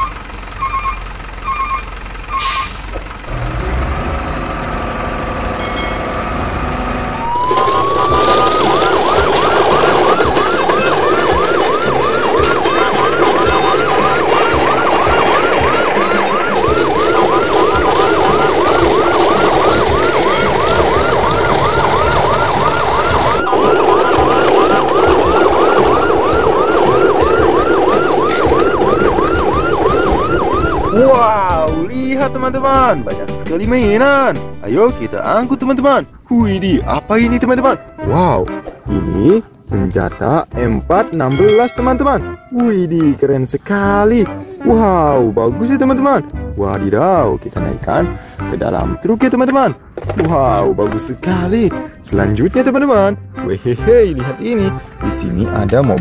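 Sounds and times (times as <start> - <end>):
electronic yelp siren: 0.0 - 2.9, 7.1 - 36.2, 41.2 - 42.6.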